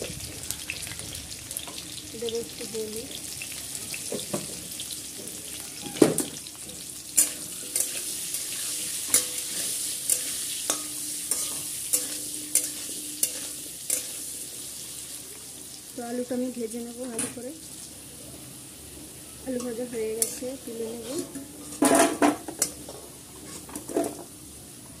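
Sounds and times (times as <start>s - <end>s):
potatoes sizzling in oil: 0.0s - 25.0s
spatula scraping metal pan: 7.2s - 14.4s, 19.6s - 24.2s.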